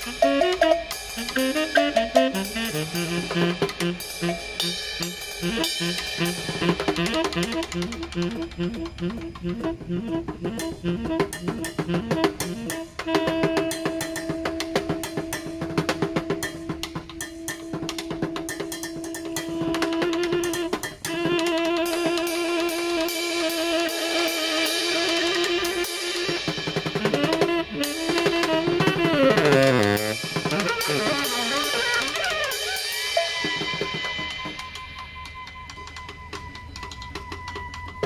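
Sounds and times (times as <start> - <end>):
saxophone playing: 0.0 - 36.0
snare drum beat: 10.5 - 22.2, 26.0 - 34.7.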